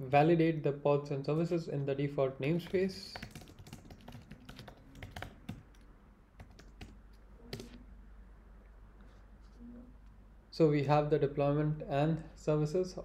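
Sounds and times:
computer keyboard typing: 2.6 - 7.8.

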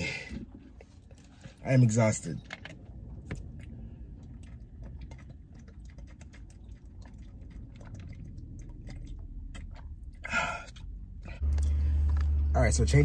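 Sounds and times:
person gulping water: 2.4 - 11.8.

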